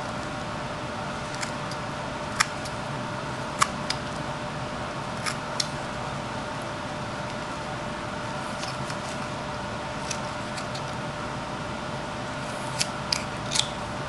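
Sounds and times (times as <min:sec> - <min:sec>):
room hum: 0:00.0 - 0:14.0
knife cutting wood snaps: 0:12.8 - 0:13.8.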